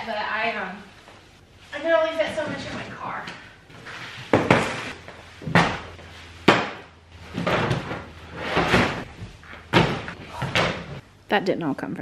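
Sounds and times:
sharp knocks: 0:04.3 - 0:08.0.

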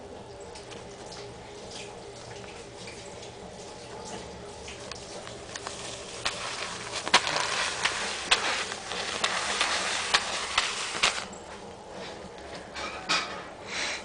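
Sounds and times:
paper bill crinkling on carpet: 0:04.9 - 0:11.4.

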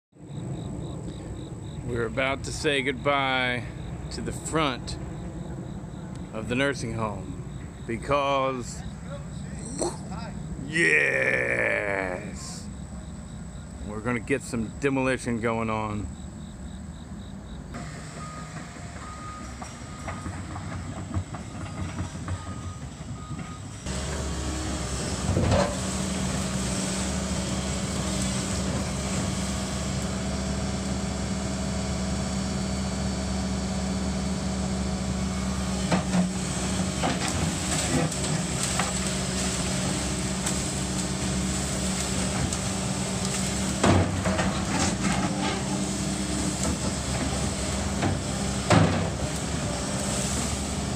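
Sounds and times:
excavator diesel engine running: 0:17.8 - 0:50.9.

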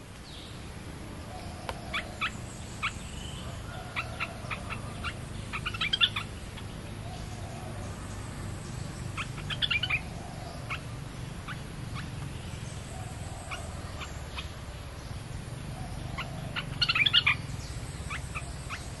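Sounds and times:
bubbly bird song: 0:01.8 - 0:14.6, 0:15.8 - 0:19.0.

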